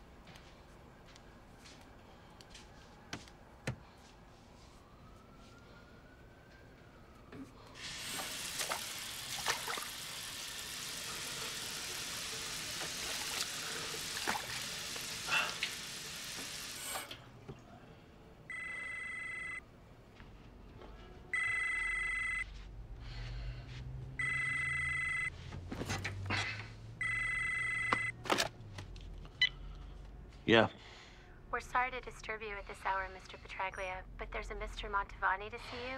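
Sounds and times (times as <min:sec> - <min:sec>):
water running from tap: 0:07.8 - 0:17.0.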